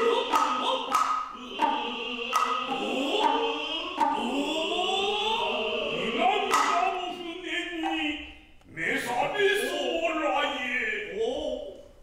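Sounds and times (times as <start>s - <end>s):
hand drum strikes: 0.0s - 4.3s
drawn-out vocal calls: 0.0s - 6.2s.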